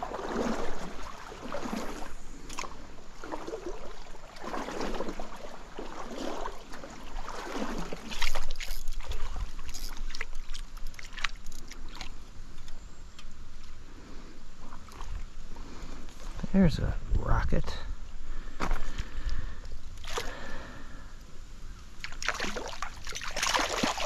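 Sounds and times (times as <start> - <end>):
stream water splashing: 0.0 - 16.8, 18.3 - 20.8, 21.8 - 24.0.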